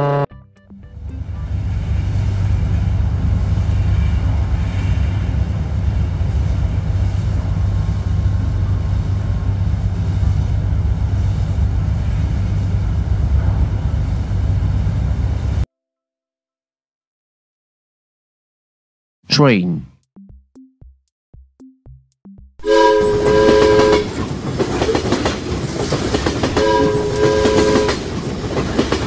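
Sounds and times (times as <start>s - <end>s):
ship engines droning: 0.0s - 15.6s, 22.6s - 25.7s, 26.4s - 28.9s.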